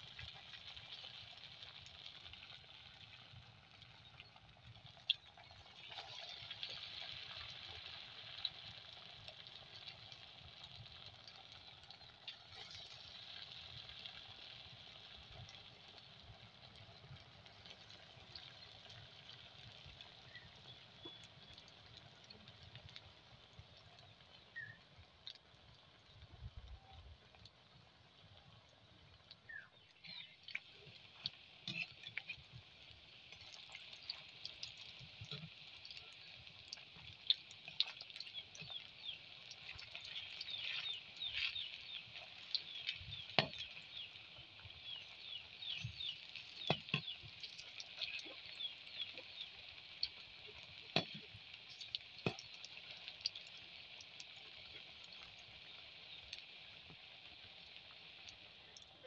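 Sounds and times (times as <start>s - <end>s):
deep-frying sizzle and pops: 0.0s - 59.0s.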